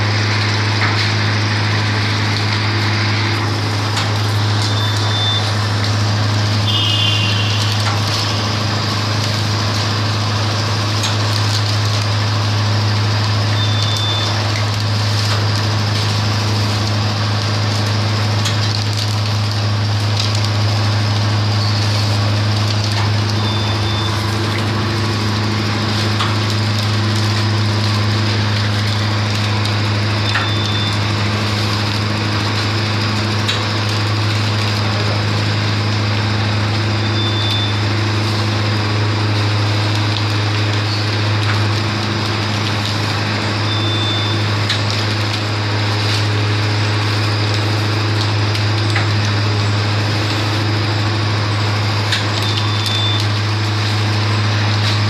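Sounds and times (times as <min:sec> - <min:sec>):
filling machine motor hum: 0:00.0 - 0:55.0
short high beep: 0:04.7 - 0:05.5.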